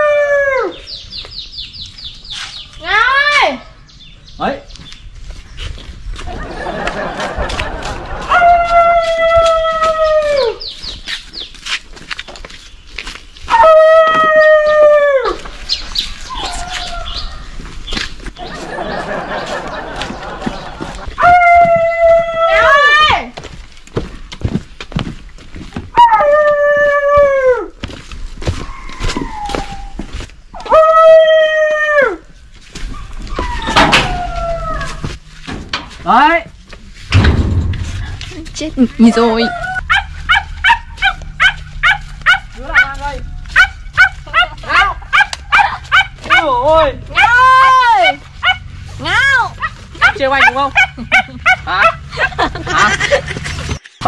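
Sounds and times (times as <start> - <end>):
dog howling: 0.0 - 0.9, 8.3 - 10.6, 13.5 - 15.5, 16.3 - 17.4, 21.2 - 23.0, 26.0 - 27.7, 28.7 - 30.0, 30.6 - 32.2, 33.3 - 35.1, 39.2 - 42.9.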